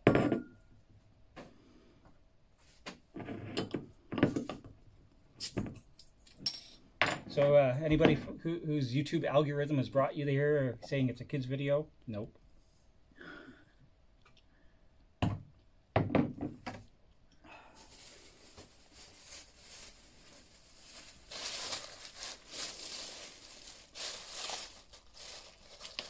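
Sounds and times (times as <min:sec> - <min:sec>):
glass bottle thumping on tile: 0:00.0 - 0:00.6
plastic bag rustling: 0:17.7 - 0:26.0.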